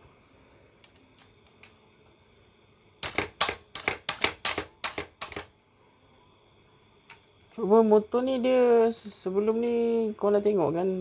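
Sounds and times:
ratchet wrench clicking: 3.0s - 5.5s.

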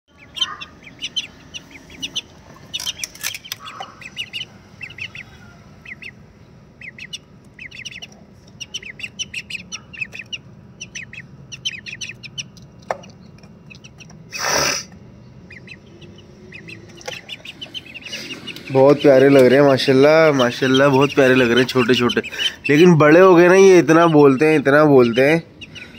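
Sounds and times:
ducklings peeping: 0.1s - 25.9s.

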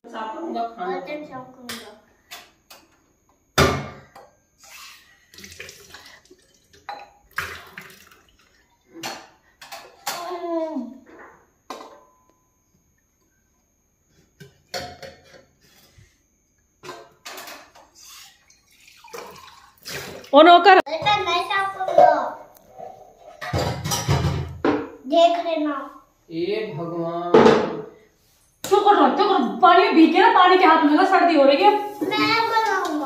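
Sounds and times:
water splashing: 18.6s - 20.4s.

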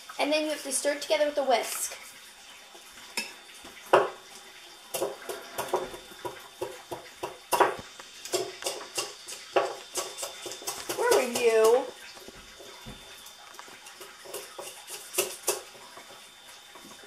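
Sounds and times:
whisk clicking against bowl: 5.0s - 11.9s.

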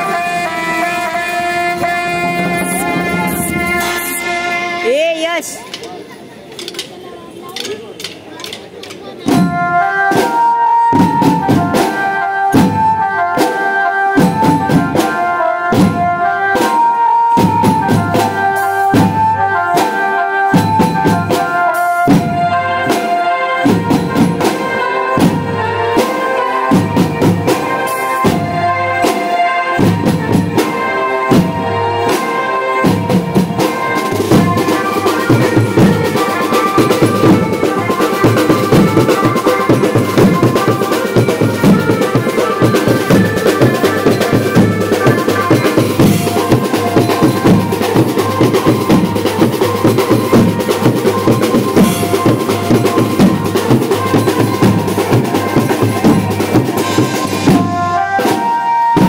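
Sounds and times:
driving drum beat: 0.0s - 5.6s, 29.8s - 59.0s
banjo band melody: 0.0s - 59.0s.

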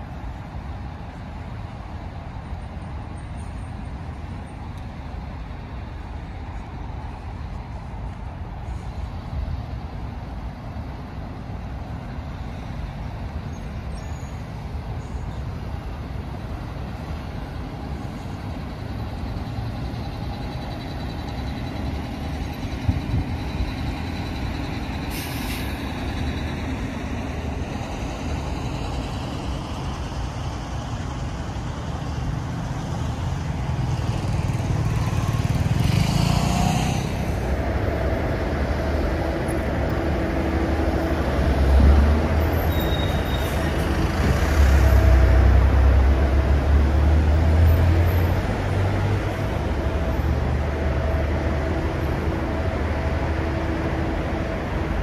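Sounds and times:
heavy vehicles rumbling: 0.0s - 55.0s
street traffic passing: 0.0s - 55.0s
brief hisses: 25.1s - 25.8s.

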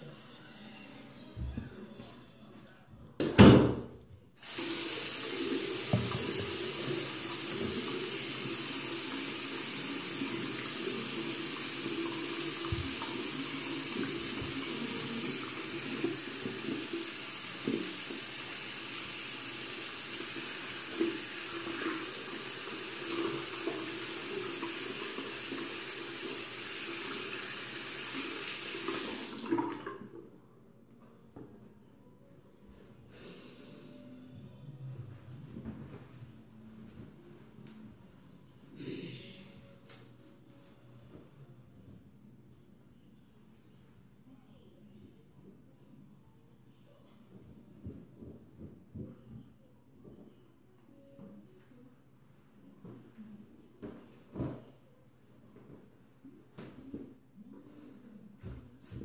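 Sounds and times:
faucet water running into sink: 4.4s - 30.0s.

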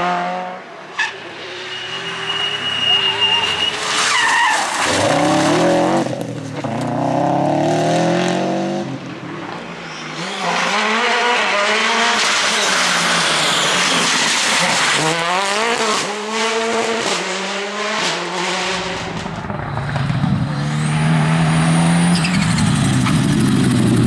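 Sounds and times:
rally car engine at high revs: 0.0s - 0.6s, 4.8s - 19.5s
tyre and gravel noise: 1.9s - 6.9s
rally car accelerating hard: 3.0s - 24.0s.

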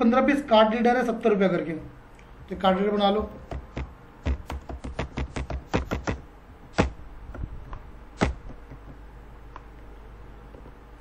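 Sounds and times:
keyboard typing: 3.2s - 6.2s.

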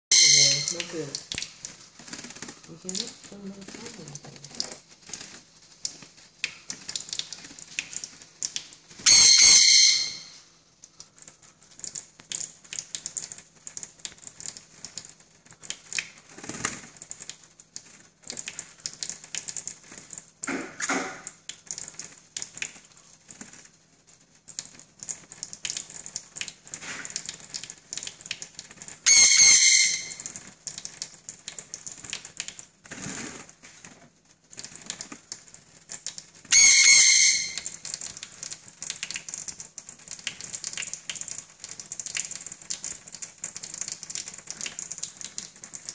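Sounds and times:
parrot squawking harshly: 0.1s - 0.8s, 9.0s - 10.4s, 29.1s - 30.3s, 36.5s - 37.7s
water spattering: 0.2s - 45.9s.

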